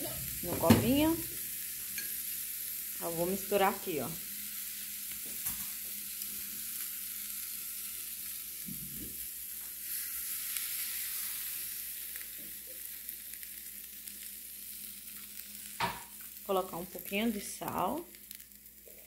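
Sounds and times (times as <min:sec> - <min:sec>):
vegetables sizzling in a frying pan: 0:00.0 - 0:19.0.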